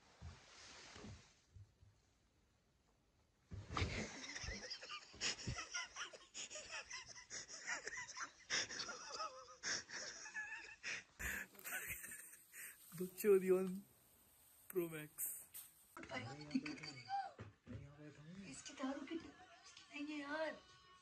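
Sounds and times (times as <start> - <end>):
stifled wheezy laughter: 3.8 - 12.9.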